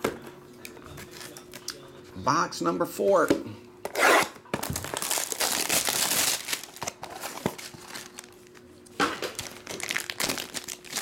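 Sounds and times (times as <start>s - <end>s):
plastic shrink wrap tearing: 4.6s - 8.6s, 9.2s - 11.0s
plastic foil pouch rustling: 4.7s - 8.6s, 9.3s - 11.0s.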